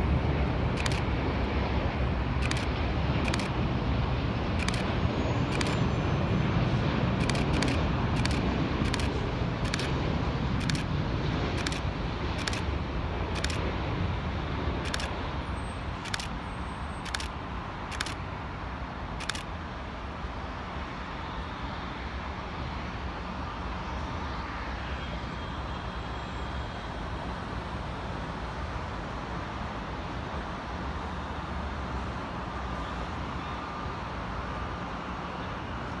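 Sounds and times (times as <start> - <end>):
jet engines passing: 0.0 - 36.0
road traffic noise: 0.0 - 36.0
sharp clicks: 0.7 - 1.1, 2.4 - 3.6, 4.6 - 4.9, 5.5 - 5.8, 7.2 - 10.0, 10.6 - 10.9, 11.5 - 12.7, 13.4 - 13.6, 14.8 - 15.2, 16.0 - 16.4, 17.0 - 18.2, 19.2 - 19.5.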